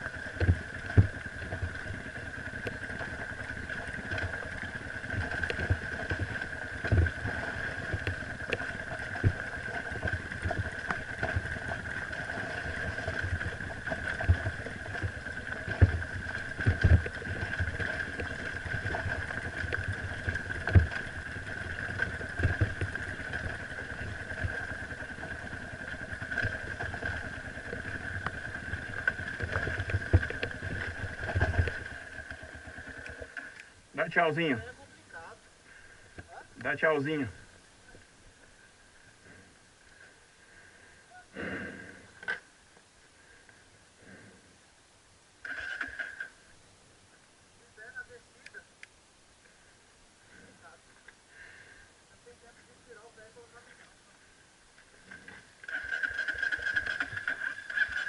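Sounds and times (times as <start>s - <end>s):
bike knocking over rocks: 0.0s - 33.4s
dirt bike engine running: 0.0s - 37.4s, 54.9s - 58.0s.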